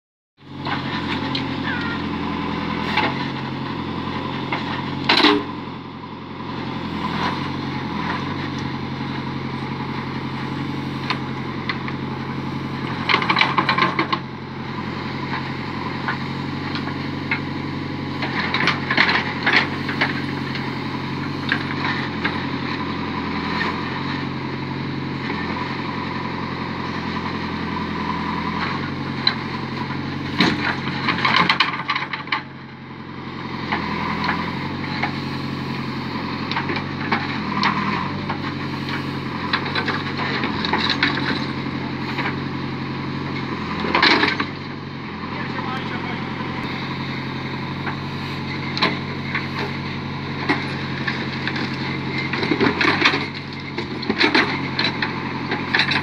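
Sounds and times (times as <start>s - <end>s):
diesel engine running: 0.4s - 56.0s.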